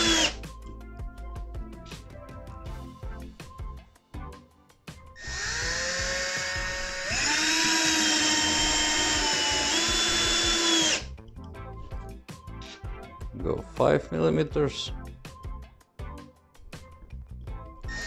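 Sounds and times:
drill motor whining: 0.0 - 0.4, 5.2 - 11.1.

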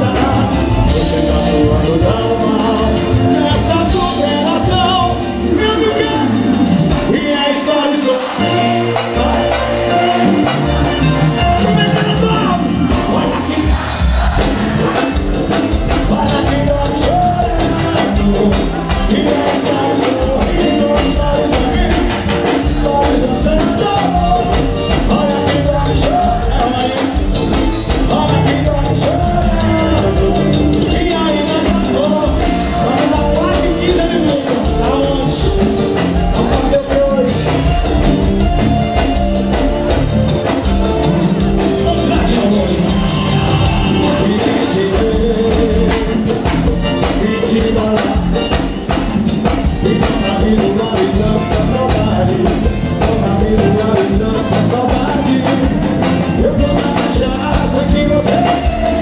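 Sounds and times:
live band music: 0.0 - 59.0
person singing: 0.0 - 59.0.

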